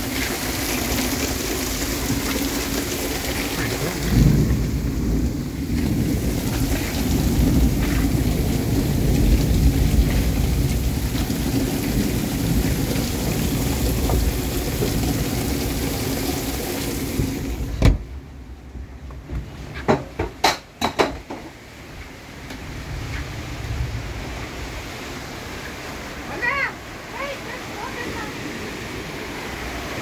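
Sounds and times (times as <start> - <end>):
heavy rain pouring on water: 0.0 - 17.8, 22.2 - 30.0
door shutting knock: 17.8 - 18.0.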